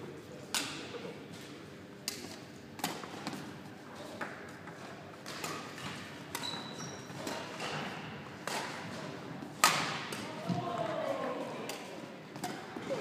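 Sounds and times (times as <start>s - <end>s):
racket hitting shuttlecock: 2.1s - 3.5s, 5.2s - 10.6s, 11.7s - 13.0s
shoe squeak: 6.4s - 7.2s.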